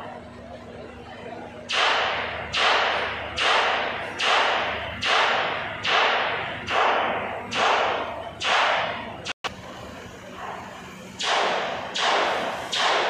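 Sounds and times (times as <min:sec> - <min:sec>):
sharp mechanical hammering blows: 0:01.6 - 0:09.7, 0:10.9 - 0:13.0.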